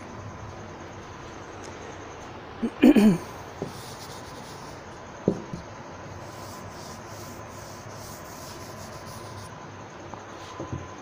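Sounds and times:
eraser rubbing chalkboard: 0:03.6 - 0:04.9, 0:06.1 - 0:09.6.

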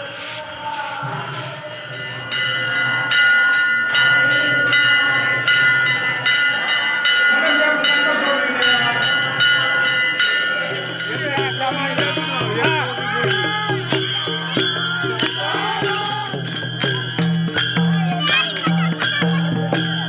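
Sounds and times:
temple bell ringing: 0:00.0 - 0:20.0
voices chanting: 0:00.0 - 0:20.0.

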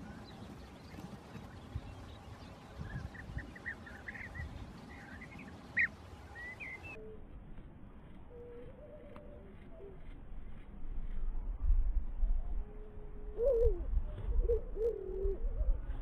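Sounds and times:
bee-eaters chirping: 0:00.0 - 0:07.0.

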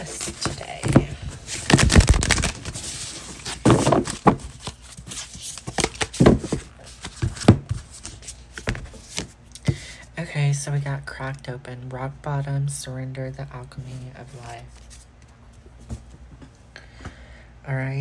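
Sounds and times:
cards shuffling and slapping: 0:00.0 - 0:09.3.

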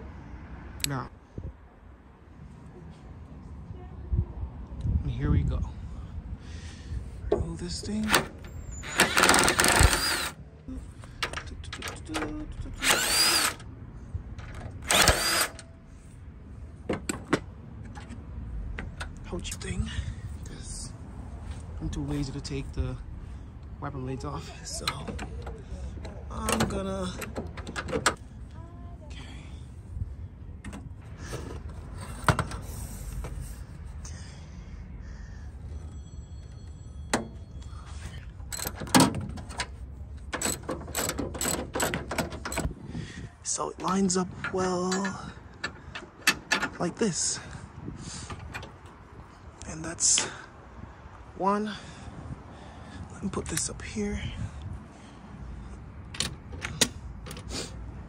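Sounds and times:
impact driver whining: 0:08.1 - 0:10.4, 0:12.8 - 0:13.7, 0:14.6 - 0:15.7.

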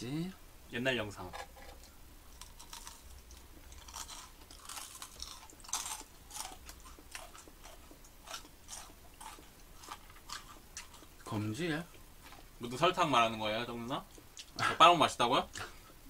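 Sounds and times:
crisp crunching while chewing: 0:02.3 - 0:11.4.

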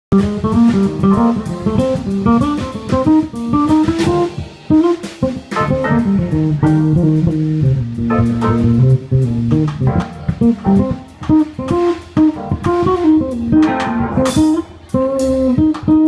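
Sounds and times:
drum kit: 0:00.1 - 0:16.0
electric bass guitar run: 0:00.1 - 0:16.0.

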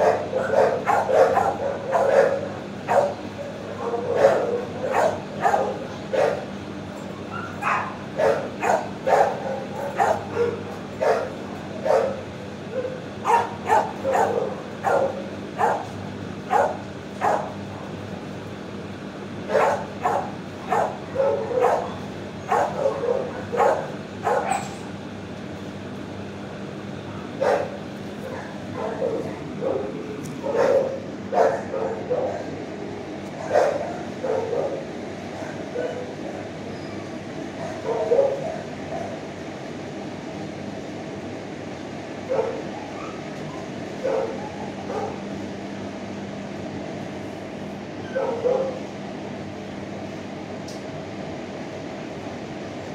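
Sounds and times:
dogs barking: 0:00.0 - 0:06.6, 0:07.2 - 0:18.0, 0:19.4 - 0:24.9, 0:27.2 - 0:36.6, 0:37.4 - 0:39.4, 0:42.2 - 0:45.4, 0:48.0 - 0:49.0
steady low hum: 0:00.0 - 0:52.9.

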